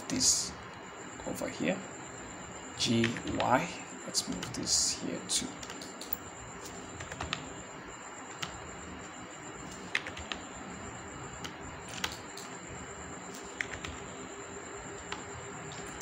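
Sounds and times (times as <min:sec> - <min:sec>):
steady background hiss: 0:00.0 - 0:16.0
computer keys and mouse clicking: 0:05.6 - 0:07.4, 0:09.7 - 0:10.4, 0:11.4 - 0:12.6, 0:13.3 - 0:14.0.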